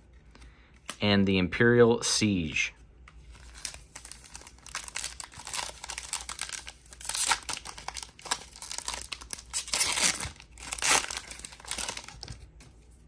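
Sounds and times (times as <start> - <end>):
foil wrapper tearing and crinkling: 3.4 - 12.3.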